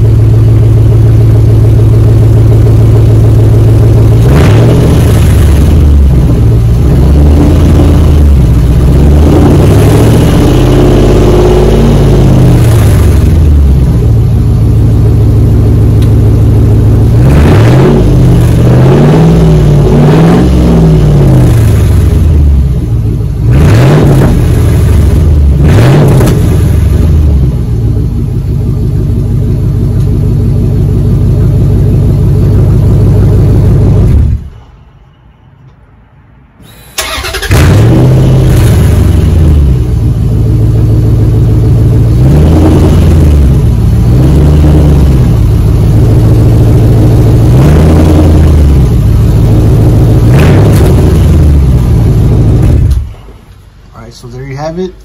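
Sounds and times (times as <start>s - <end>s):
engine idling: 0.0s - 19.9s, 20.7s - 34.7s, 36.6s - 55.0s
loud pickup truck engine revving: 3.0s - 15.4s, 16.6s - 28.2s, 37.0s - 53.1s.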